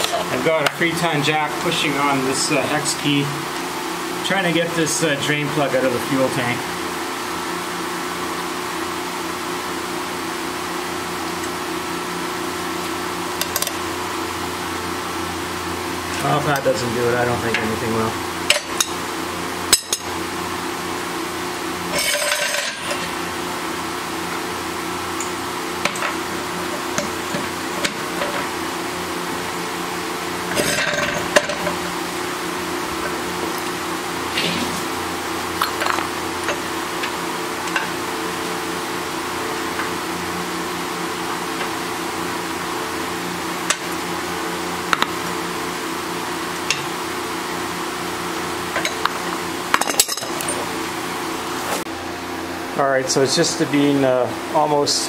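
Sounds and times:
steady background hum: 0:00.0 - 0:55.0
metal tools clinking: 0:49.8 - 0:50.7.

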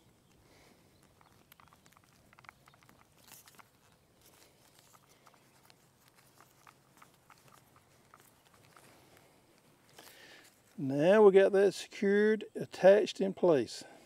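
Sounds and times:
plastic clicks and crackles: 0:00.0 - 0:10.1.

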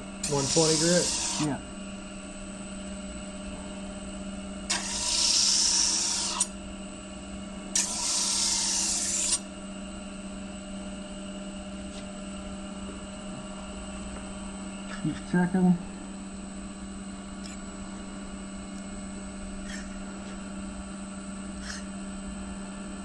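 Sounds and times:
disc grinder humming: 0:00.0 - 0:02.1, 0:04.6 - 0:09.5, 0:16.8 - 0:20.8, 0:21.4 - 0:22.1
knife blade grinding hiss: 0:00.2 - 0:01.6, 0:04.7 - 0:06.6, 0:07.7 - 0:09.4, 0:19.6 - 0:19.9, 0:21.6 - 0:21.9.

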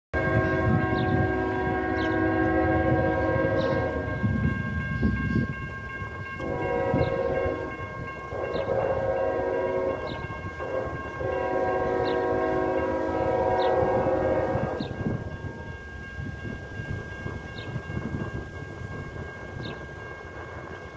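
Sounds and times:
locomotive air horn blasts: 0:00.1 - 0:04.9, 0:06.1 - 0:15.7.

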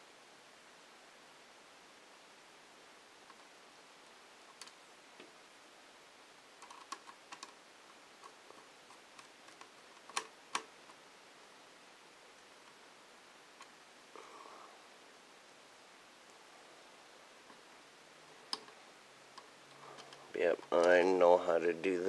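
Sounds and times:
small parts clicking: 0:06.6 - 0:07.6, 0:19.4 - 0:21.0.

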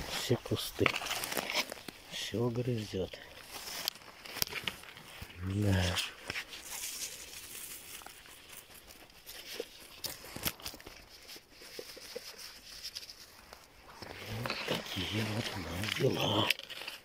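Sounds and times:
footsteps through dry grass: 0:00.0 - 0:16.4
twig snaps: 0:03.8 - 0:04.8.

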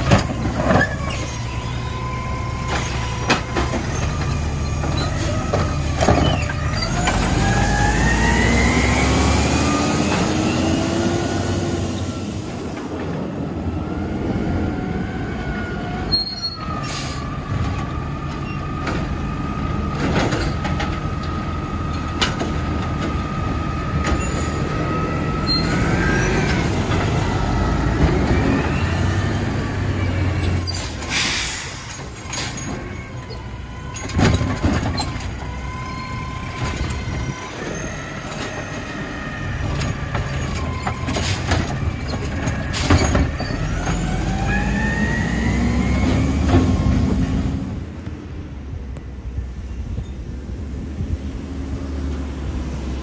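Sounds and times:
garbage truck engine whining: 0:00.0 - 0:53.0
air brake hisses: 0:30.8 - 0:32.5.

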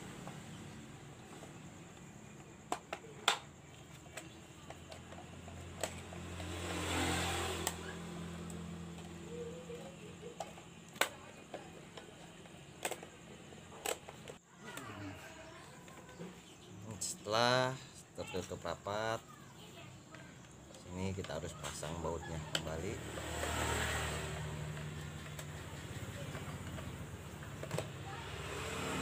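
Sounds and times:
plastic parts clicking together: 0:09.7 - 0:14.9.

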